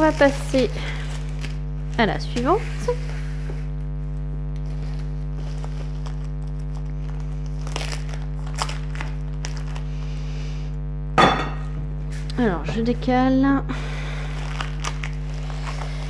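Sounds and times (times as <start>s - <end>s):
plastic wrapping crinkling: 0.0s - 10.3s, 14.0s - 16.0s
electrical hum: 0.0s - 16.0s.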